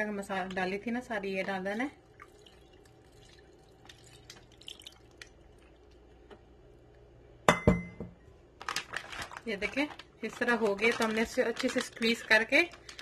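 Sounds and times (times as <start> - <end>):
faint steady hum: 0.0 - 13.0
marinade dripping into plastic bag: 1.4 - 6.1, 8.6 - 13.0.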